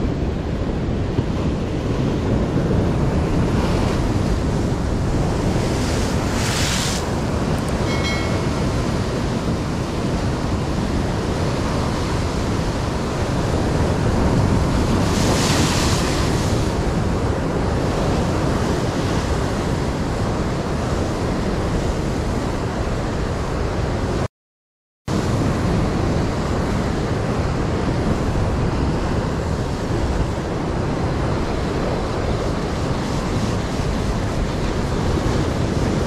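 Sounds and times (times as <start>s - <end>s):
wind buffeting microphone: 0.0s - 24.2s.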